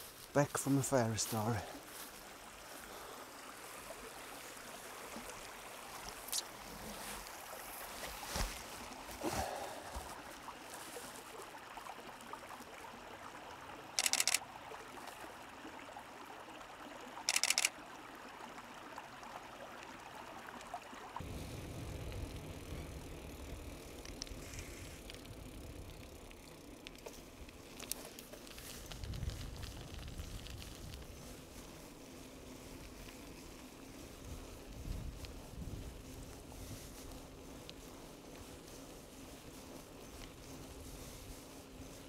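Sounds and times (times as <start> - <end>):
stream running: 0.0 - 42.0
camera shutter clicks: 14.0 - 14.4, 17.3 - 17.7
wind and tyres rumbling: 21.2 - 42.0.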